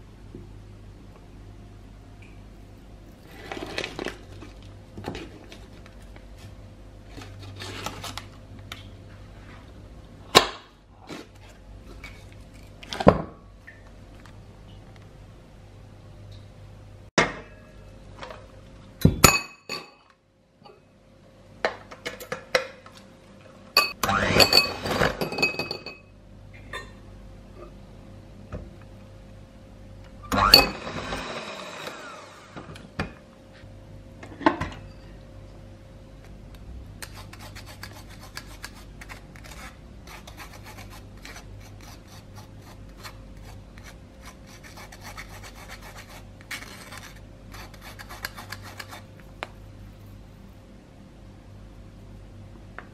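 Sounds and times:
ceramic bowl and utensils clinking: 23.8 - 26.1.

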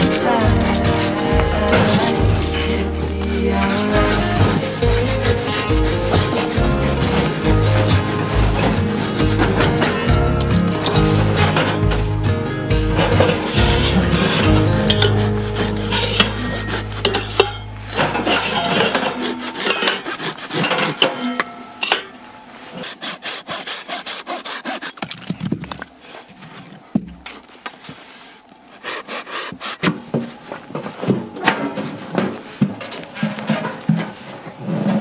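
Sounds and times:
metal stovepipe scraping and clinking: 0.0 - 12.1, 12.9 - 22.1
background music: 0.0 - 20.2.

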